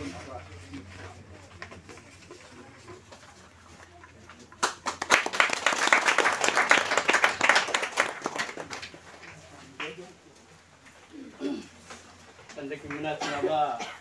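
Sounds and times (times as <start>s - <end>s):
crowd clapping: 4.2s - 10.1s, 12.7s - 13.6s.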